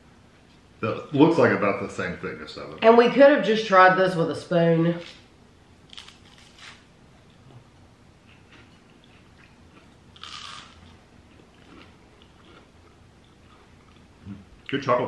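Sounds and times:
toast crunching: 5.9s - 7.6s, 8.2s - 14.1s
quiet chewing: 5.9s - 14.8s.

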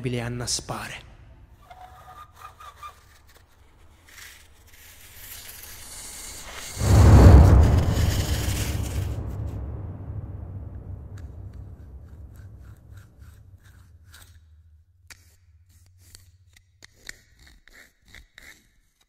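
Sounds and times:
deep rumbling drone: 6.8s - 13.9s.

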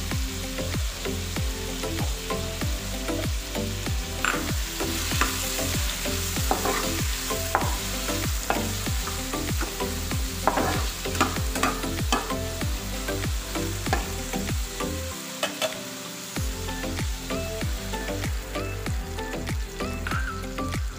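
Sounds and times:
background music with steady beat: 0.0s - 20.9s
meat sizzling in a frying pan: 0.0s - 20.9s.

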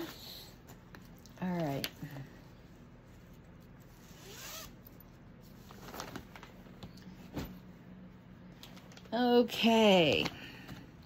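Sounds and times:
soft clicks and rustles: 8.5s - 9.2s.

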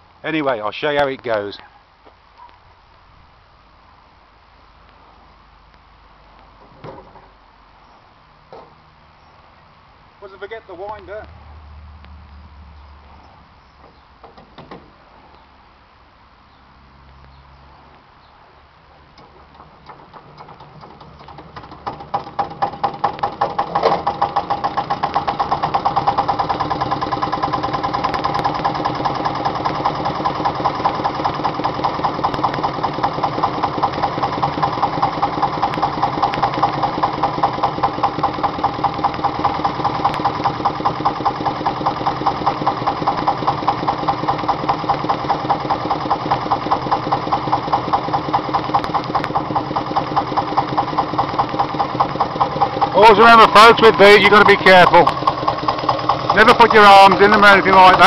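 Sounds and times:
diesel engine running: 19.0s - 58.0s.

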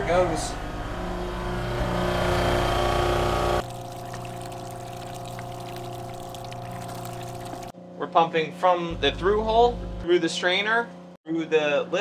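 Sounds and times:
pump running: 2.8s - 7.7s
water rushing through pipes: 3.6s - 7.7s.

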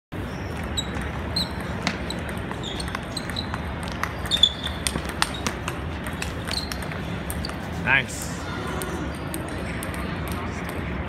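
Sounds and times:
low hall hum: 0.2s - 11.0s
table tennis ball clicking: 0.6s - 7.6s
short high squeaks: 4.2s - 5.5s, 6.4s - 7.6s.

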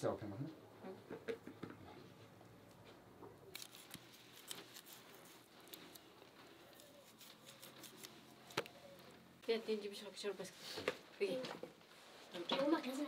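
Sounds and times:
knife cutting raw chicken: 6.7s - 8.7s.

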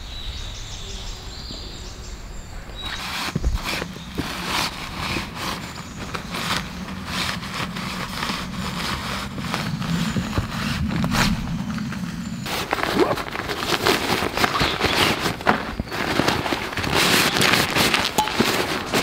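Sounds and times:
low hum: 0.0s - 15.9s
hammock fabric rustling: 2.7s - 19.0s.

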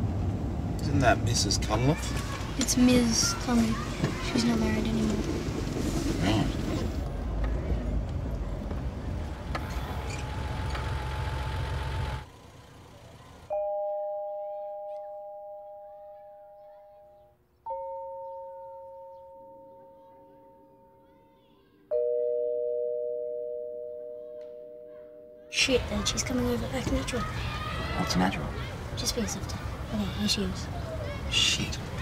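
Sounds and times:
car noise: 0.0s - 13.6s
bell-like chords ringing: 13.5s - 25.7s.

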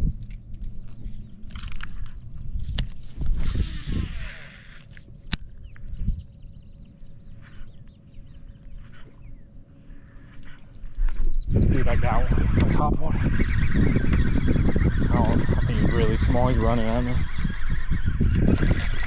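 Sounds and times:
birds chirping: 0.0s - 19.0s
faint steady hum: 0.0s - 19.0s
fishing line hissing off spool: 3.4s - 5.0s.

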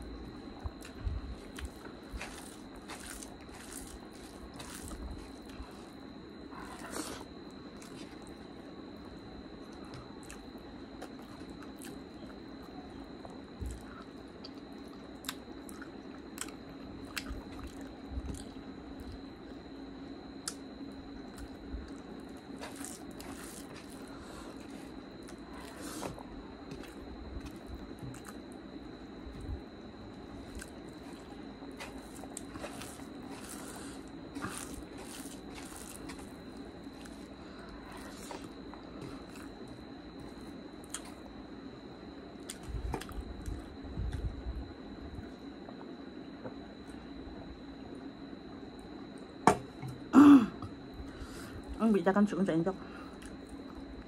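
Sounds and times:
faint hum: 0.0s - 54.0s
wet chewing: 0.6s - 8.4s, 13.6s - 19.2s, 21.2s - 28.5s, 30.2s - 41.2s.

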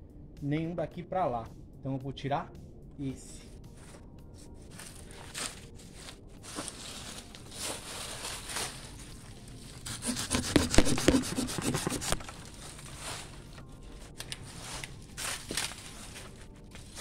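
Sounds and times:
hand saw cutting a branch: 9.8s - 12.6s.

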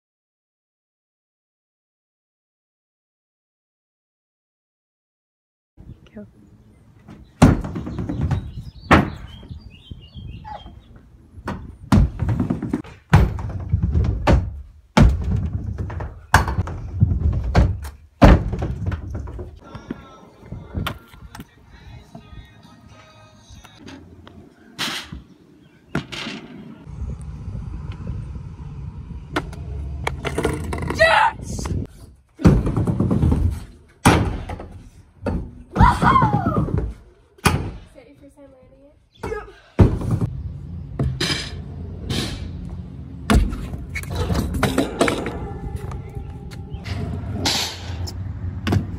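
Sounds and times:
scooter landing slams: 11.5s - 19.5s, 32.4s - 37.8s, 43.3s - 45.4s
scooter wheels rolling on boards: 25.9s - 31.8s
scooter wheels rolling on ramp: 26.0s - 34.0s, 43.4s - 48.9s.

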